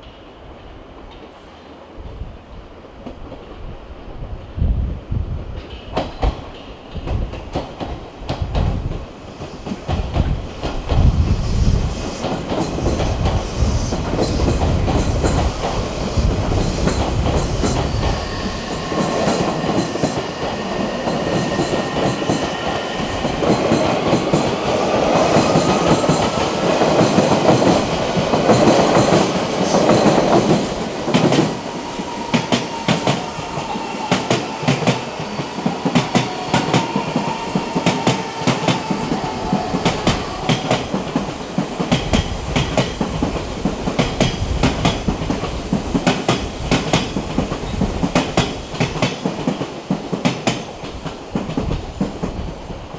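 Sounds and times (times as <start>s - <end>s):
heavy train rumble: 0.0s - 52.9s.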